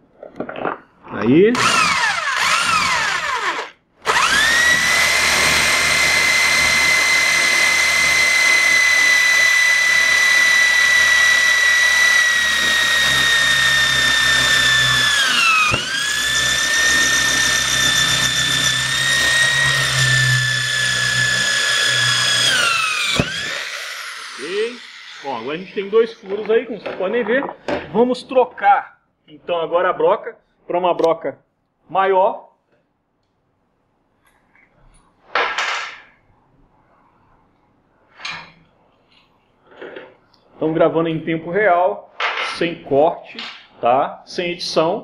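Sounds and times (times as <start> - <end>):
electric drill whining: 1.5 - 26.4.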